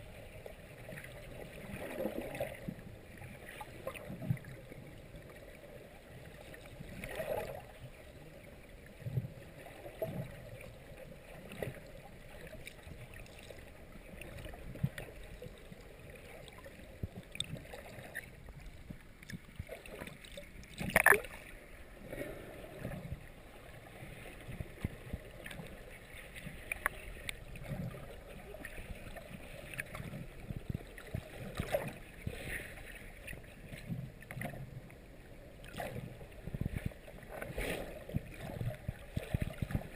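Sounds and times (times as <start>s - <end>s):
muffled water swishing and gurgling: 0.0s - 39.9s
water whoosh: 16.4s - 32.9s.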